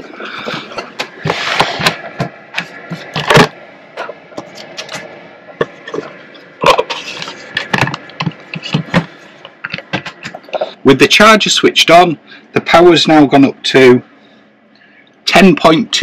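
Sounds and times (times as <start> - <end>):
camera handling knocks and rustling: 7.2 - 10.6.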